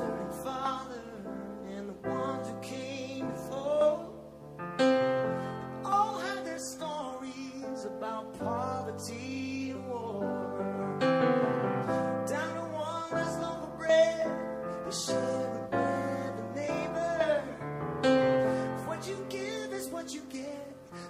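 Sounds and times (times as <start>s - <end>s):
person singing: 0.0s - 21.0s
instrumental accompaniment: 10.2s - 19.0s.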